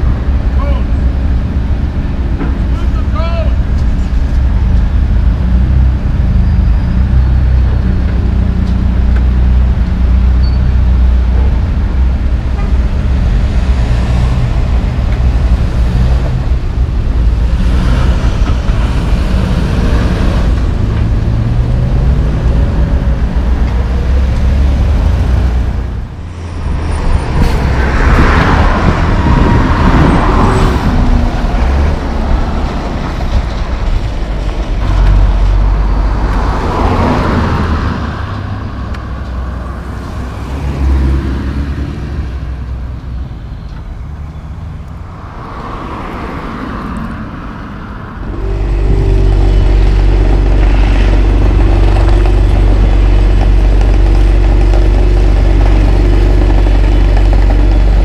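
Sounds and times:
vehicle engines rumbling: 0:00.0 - 0:58.0
loud vehicle passing: 0:10.8 - 0:42.9, 0:44.0 - 0:58.0.

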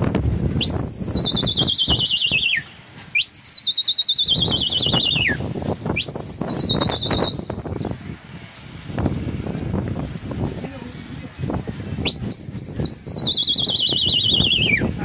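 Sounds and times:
shrill warbling whistle: 0:00.6 - 0:08.0, 0:12.0 - 0:14.9.

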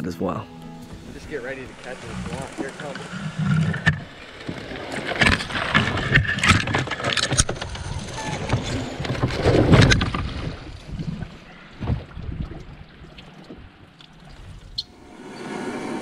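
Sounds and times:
loud rush: 0:00.8 - 0:06.5, 0:15.0 - 0:16.0
branches scraping and snapping: 0:00.8 - 0:11.5
water washing along hull: 0:00.8 - 0:16.0.

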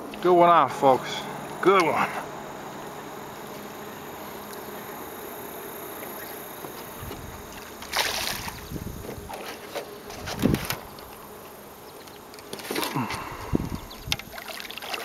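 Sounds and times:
wind and water hiss: 0:00.0 - 0:15.0
fish splashing at surface: 0:07.5 - 0:08.7.

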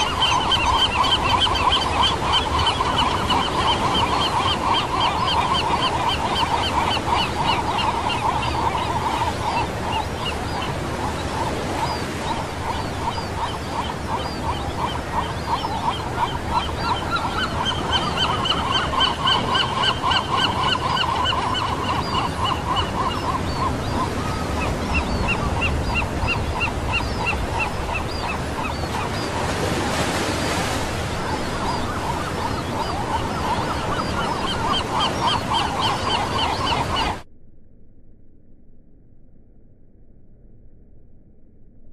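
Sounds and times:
small waves washing on beach: 0:00.0 - 0:18.6, 0:22.7 - 0:36.4.

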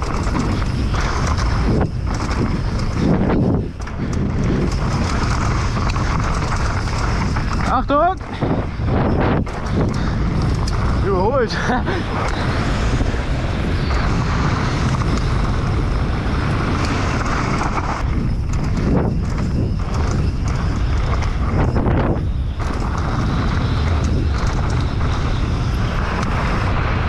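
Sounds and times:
bike clattering over rough ground: 0:00.0 - 0:27.0
tyres rolling on dirt trail: 0:00.0 - 0:27.0
wind rushing over microphone: 0:00.0 - 0:27.0.

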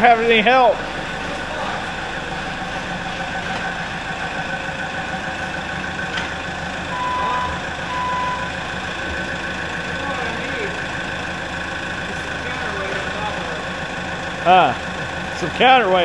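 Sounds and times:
forklift engine running: 0:00.0 - 0:16.0
warning beeper beeps: 0:06.9 - 0:08.6.

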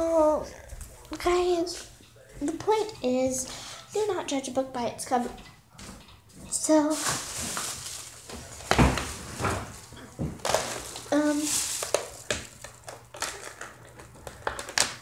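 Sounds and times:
slime squelching: 0:06.7 - 0:15.0.

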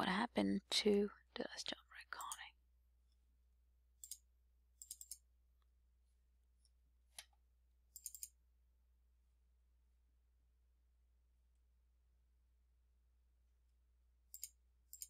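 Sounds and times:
computer mouse clicking: 0:02.2 - 0:02.4, 0:04.0 - 0:04.2, 0:04.8 - 0:05.2, 0:07.1 - 0:08.4, 0:14.3 - 0:15.0.

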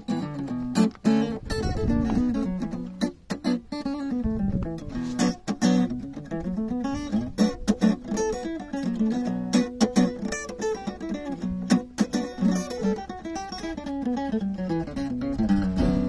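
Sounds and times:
acoustic guitar playing: 0:00.0 - 0:16.0.

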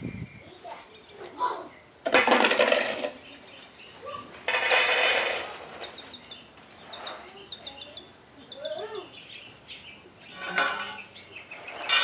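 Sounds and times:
small bird chirping: 0:00.0 - 0:02.0, 0:03.1 - 0:04.2, 0:05.8 - 0:12.0.

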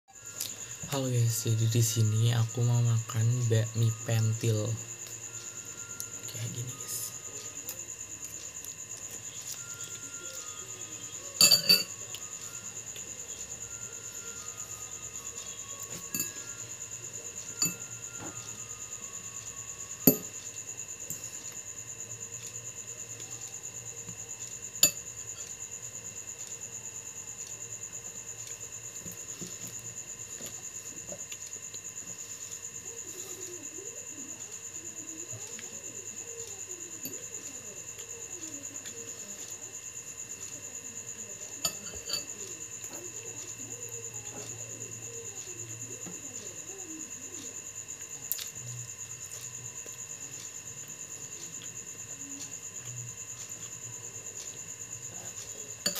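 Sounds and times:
crickets chirping: 0:00.1 - 0:55.9
utensil clinking against bowl: 0:11.4 - 0:12.0, 0:15.8 - 0:16.4, 0:17.5 - 0:18.3, 0:20.0 - 0:20.4, 0:41.6 - 0:42.4.

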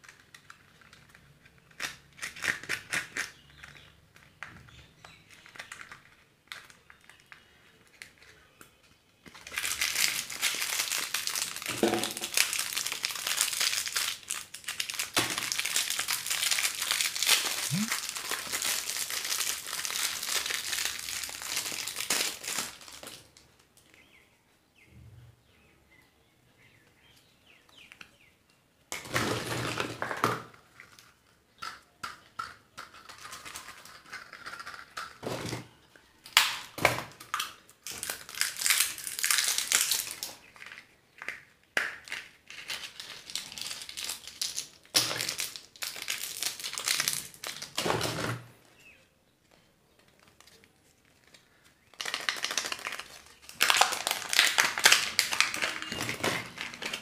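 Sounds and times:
crinkly wrappers being unwrapped: 0:00.0 - 0:08.6, 0:09.2 - 0:24.0, 0:32.8 - 0:35.2, 0:36.2 - 0:47.8, 0:50.0 - 0:57.0.

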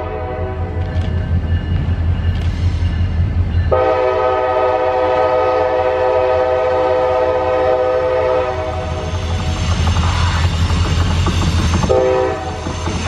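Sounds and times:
locomotive air horn blast: 0:00.0 - 0:00.8, 0:03.7 - 0:09.2, 0:11.9 - 0:12.6.

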